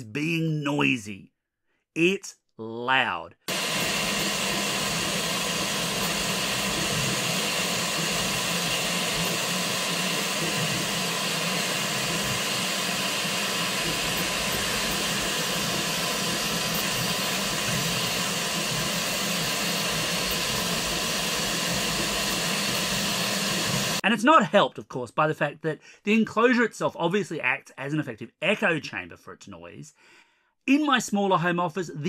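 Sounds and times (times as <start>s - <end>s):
high whine: 3.5s - 24.0s.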